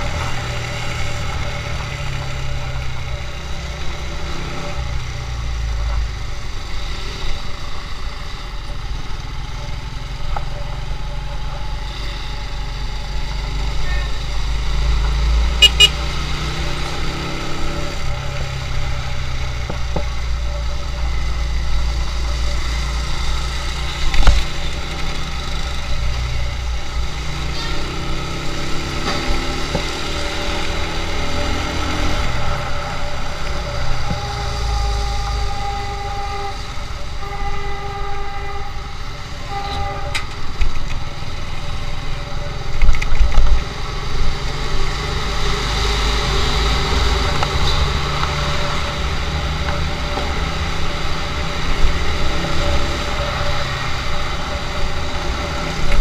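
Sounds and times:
motorcycle engine revving: 0.0s - 39.7s
vehicle horn honking: 15.6s - 16.1s, 34.2s - 40.3s.

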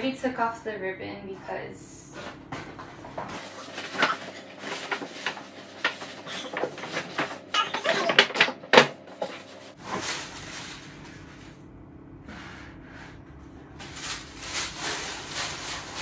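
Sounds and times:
paper rustling: 3.4s - 11.1s.

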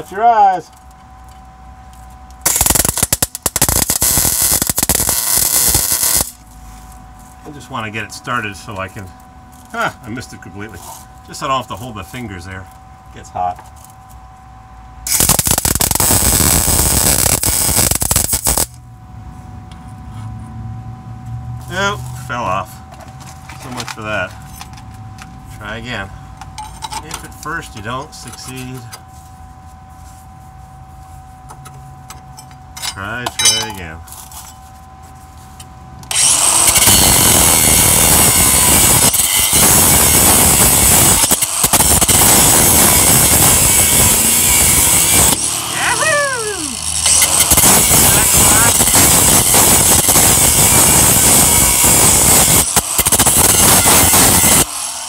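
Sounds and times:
welder arc crackling: 2.4s - 6.4s, 15.1s - 18.8s, 36.2s - 45.4s, 46.3s - 54.7s
angle grinder grinding steel: 2.5s - 6.4s, 15.1s - 18.7s, 36.1s - 55.0s.

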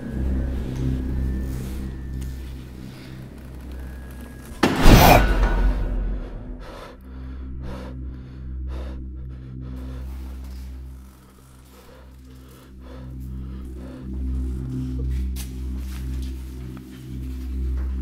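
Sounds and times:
droning horror music: 0.0s - 18.0s
loud crashing hit: 4.6s - 6.7s.

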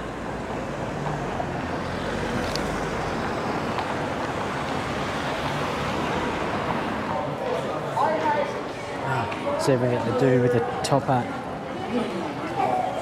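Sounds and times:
hum of traffic: 0.0s - 13.0s.

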